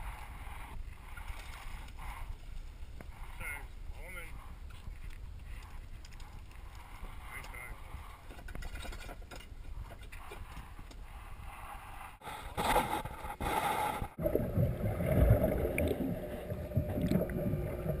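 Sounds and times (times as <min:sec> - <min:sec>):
wind and water noise: 0:00.0 - 0:18.0
muffled sea heard underwater: 0:11.2 - 0:18.0.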